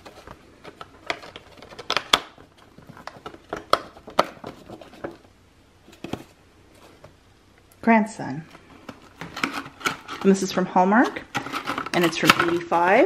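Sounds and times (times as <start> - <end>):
packaging clicks and taps: 0.0 - 5.2, 8.8 - 10.3.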